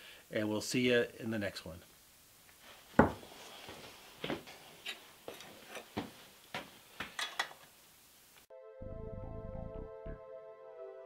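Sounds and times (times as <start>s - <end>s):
music: 8.5s - 11.0s.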